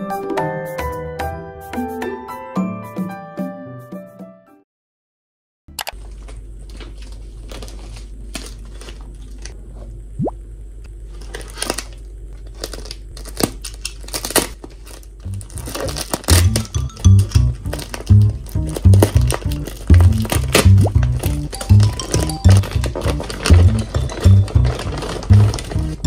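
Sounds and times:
music with a beat: 0:00.0 - 0:04.2
low steady hum: 0:05.8 - 0:26.0
plastic mailer crinkling: 0:06.0 - 0:09.6, 0:11.0 - 0:26.0.

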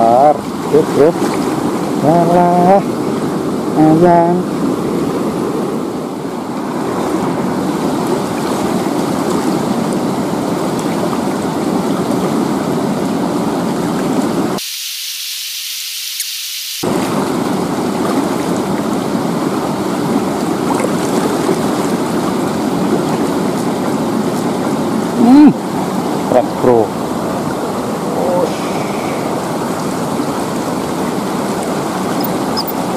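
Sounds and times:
river water flowing over rocks: 0:16.8 - 0:32.9.

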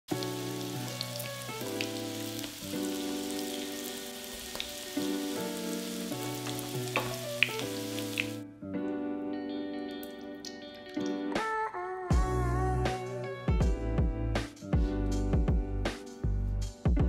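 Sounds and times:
dough sizzling in oil: 0:00.1 - 0:08.4
background music with held chords: 0:00.1 - 0:17.0.

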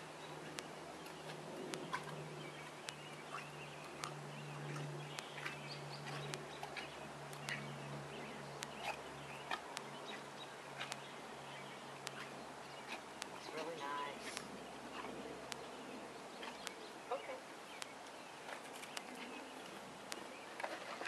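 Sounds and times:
steady low hum: 0:00.0 - 0:21.0.

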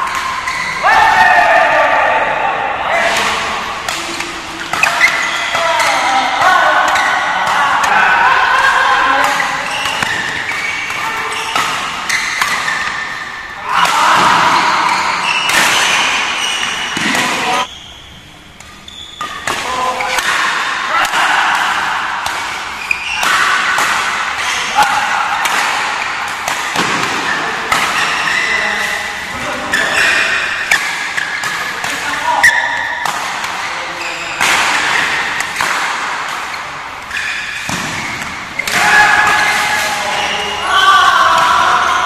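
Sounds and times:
people's voices and shouts: 0:00.0 - 0:11.6, 0:13.6 - 0:15.5, 0:38.6 - 0:42.0
racket striking shuttlecock: 0:03.0 - 0:06.0, 0:06.8 - 0:17.6, 0:18.5 - 0:28.3, 0:30.3 - 0:33.7, 0:34.4 - 0:40.0.

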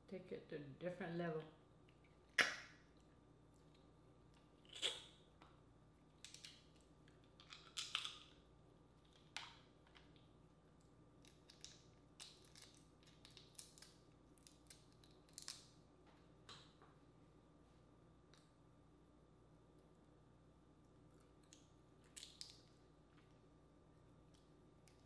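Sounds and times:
crab shell cracking: 0:06.2 - 0:08.4, 0:11.2 - 0:15.7, 0:21.4 - 0:22.6.

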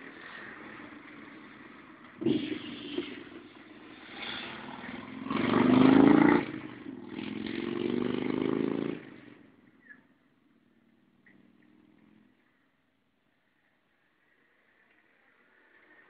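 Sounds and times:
vehicle passing: 0:00.0 - 0:09.7.

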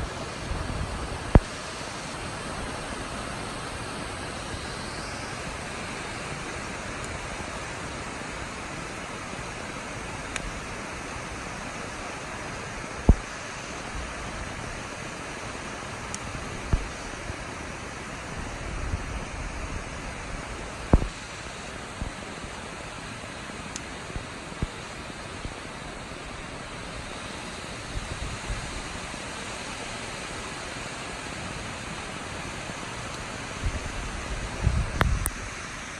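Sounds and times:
storm rushing hiss: 0:00.0 - 0:23.4, 0:24.0 - 0:35.9.

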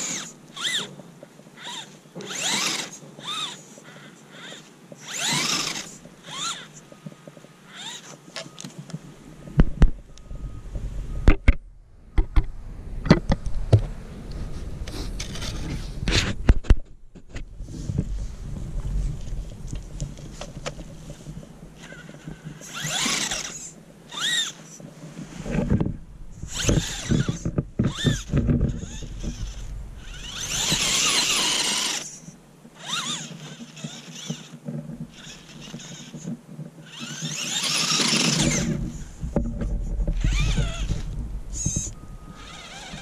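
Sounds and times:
electric motor whining: 0:00.0 - 0:00.9, 0:01.6 - 0:06.8, 0:07.7 - 0:08.6, 0:21.8 - 0:24.8, 0:25.5 - 0:36.2, 0:36.8 - 0:43.0
sharp clicks and knocks: 0:10.7 - 0:14.0.

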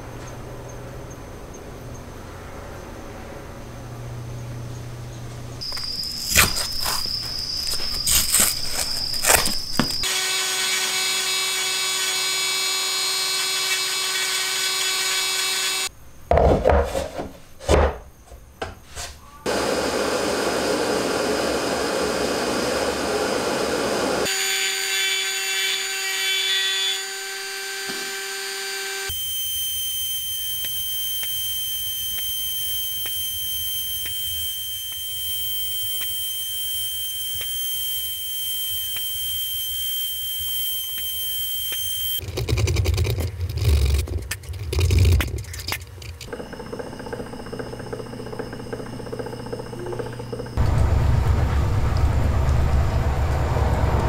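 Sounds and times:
rotary tool grinding wood: 0:05.6 - 0:15.9, 0:21.8 - 0:50.6
lathe spinning and scraping wood: 0:29.6 - 0:50.7
knocks and machine noise: 0:46.3 - 0:54.0.

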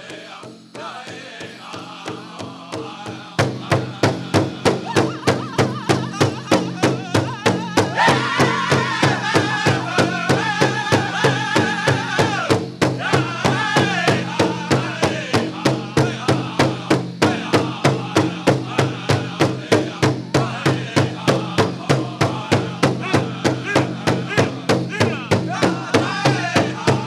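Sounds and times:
group singing: 0:00.0 - 0:27.0
steady drumbeat: 0:00.0 - 0:27.0.

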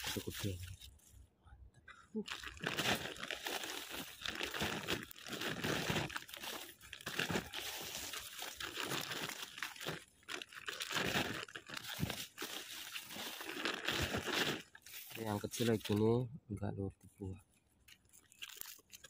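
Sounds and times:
plastic sack crinkling: 0:00.0 - 0:01.1, 0:02.3 - 0:16.0, 0:17.9 - 0:19.0
dry leaves crunching: 0:02.3 - 0:16.0.

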